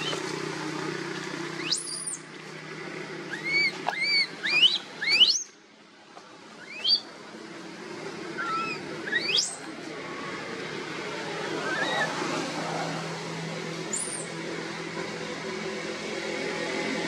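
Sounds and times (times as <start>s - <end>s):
baby monkey squealing: 1.6s - 2.2s, 3.3s - 5.5s, 6.6s - 7.1s, 8.4s - 9.6s, 11.5s - 12.2s, 13.9s - 14.4s.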